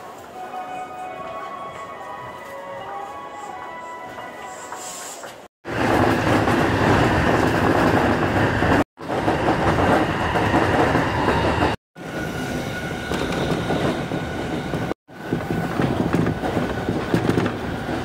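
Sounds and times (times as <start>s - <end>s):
train wheels rumbling on rail: 4.7s - 18.0s.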